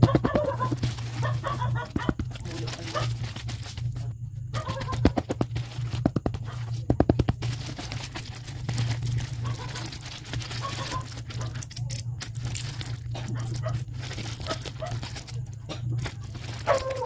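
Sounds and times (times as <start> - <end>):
plastic packaging crinkling and tearing: 0.0 - 17.0
steady low hum: 0.0 - 17.0.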